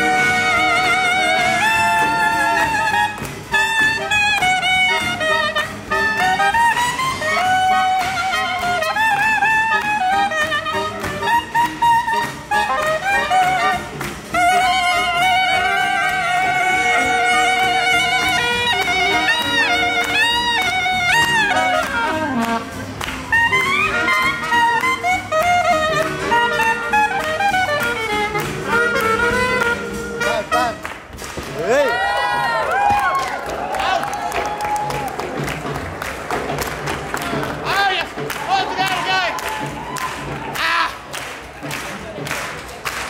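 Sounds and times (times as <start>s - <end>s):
hot jazz band playing: 0.0s - 43.0s.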